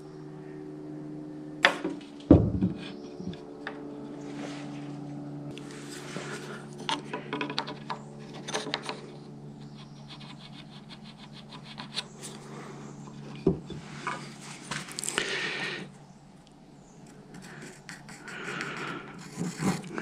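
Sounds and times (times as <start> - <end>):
steady low hum: 0.0 - 20.0
knocks and scrapes of wood: 1.6 - 4.8, 5.6 - 12.4, 13.0 - 15.1, 19.2 - 20.0
heavy thump: 1.7 - 2.8.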